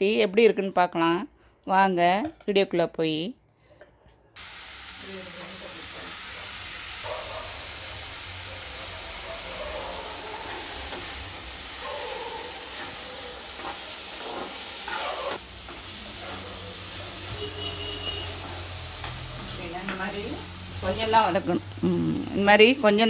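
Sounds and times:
onions sizzling in oil: 4.4 - 23.0
steel spoon scraping pan: 13.6 - 15.4.

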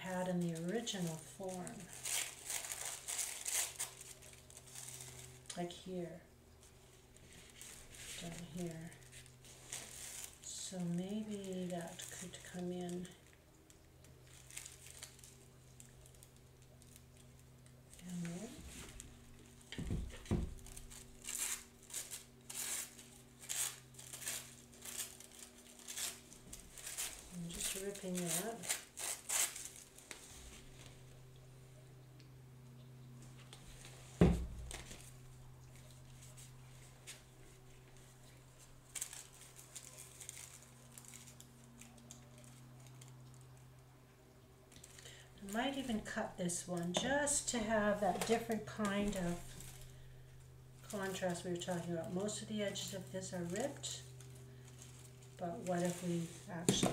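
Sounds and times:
tissue paper tearing: 0.3 - 5.5, 7.2 - 13.2, 14.3 - 16.4, 20.5 - 30.6, 38.8 - 43.1.

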